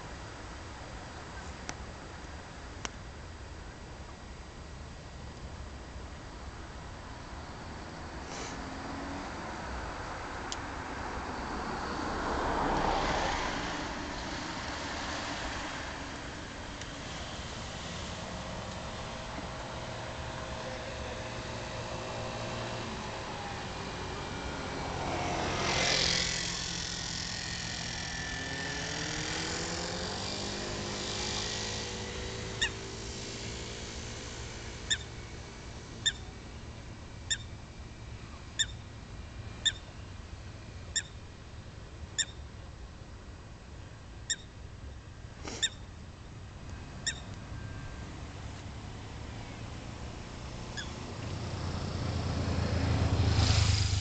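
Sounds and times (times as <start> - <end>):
low traffic hum: 0.0 - 54.0
vehicle passing: 7.1 - 41.4, 46.8 - 54.0
geese calling: 32.6 - 32.8, 34.8 - 35.1, 36.0 - 36.2, 38.6 - 38.8, 39.6 - 39.9, 47.0 - 47.3.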